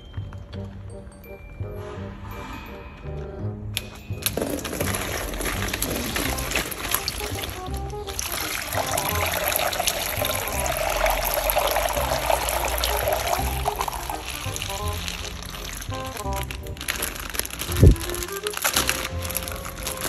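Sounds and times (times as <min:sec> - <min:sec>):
background music: 0:00.0 - 0:20.0
packaging rustling and crinkling: 0:04.2 - 0:20.0.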